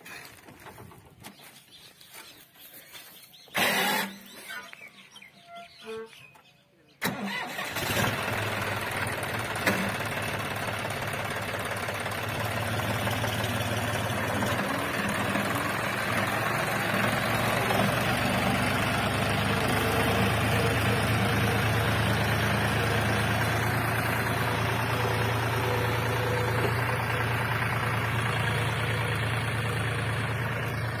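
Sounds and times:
tractor diesel engine running: 7.0 - 31.0.

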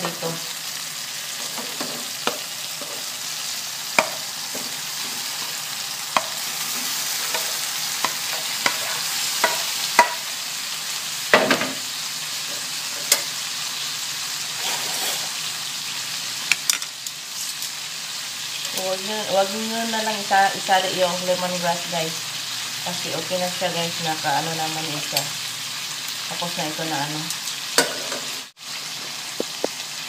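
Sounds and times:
food sizzling in a wok: 0.0 - 30.0
spatula scraping and knocking pans: 6.2 - 10.2, 14.6 - 15.3.

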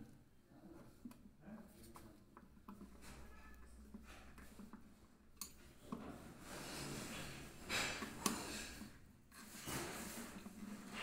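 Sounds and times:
close breathing: 6.4 - 9.0.

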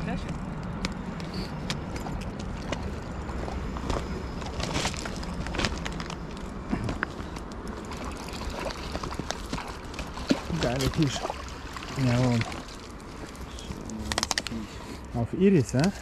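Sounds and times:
footsteps crunching on gravel: 2.4 - 7.2.

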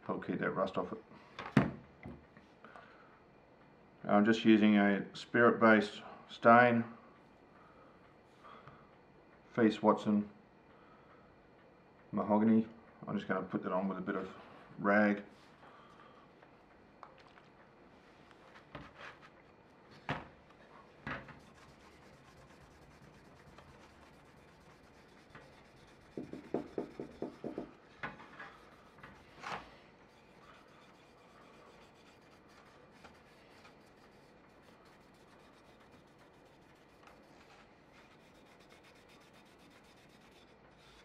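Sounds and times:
cloth rag rubbing wood: 21.3 - 27.7, 30.1 - 41.0
knocks: 26.2 - 27.8.

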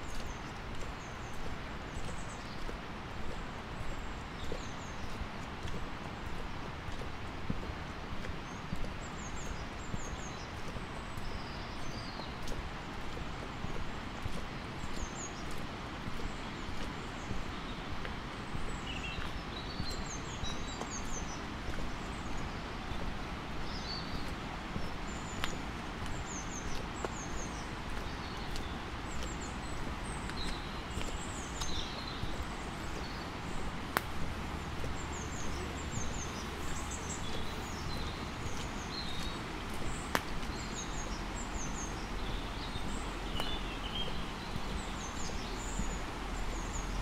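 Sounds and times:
footsteps on road: 0.0 - 47.0
small birds chirping: 0.0 - 47.0.

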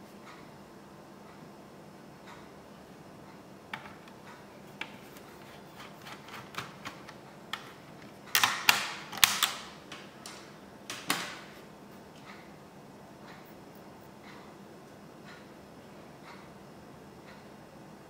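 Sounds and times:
sharp snaps and clatter: 5.7 - 11.5.

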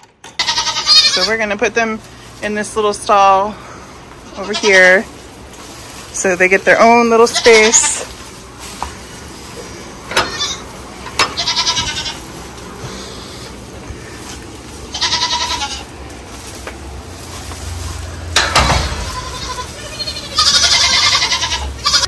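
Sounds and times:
goat kids bleating: 0.4 - 1.7, 4.1 - 5.2, 6.8 - 8.3, 9.5 - 16.3, 18.4 - 22.0
thump: 18.4 - 19.1.

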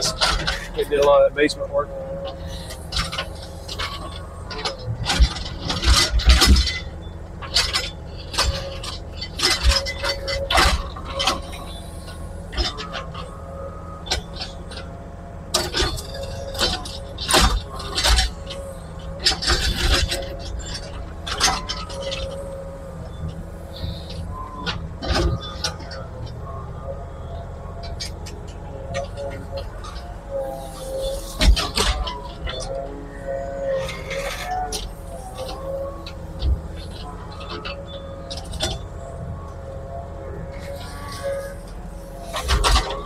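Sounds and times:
excavator engine running: 0.0 - 43.0.

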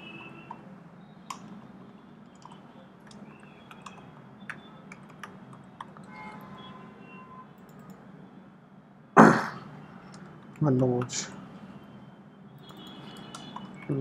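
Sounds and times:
computer keyboard key clicks: 2.4 - 6.1.

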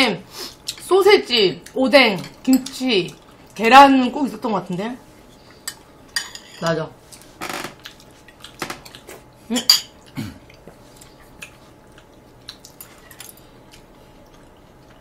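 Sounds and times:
utensils clinking on ceramic bowls: 5.7 - 6.7.

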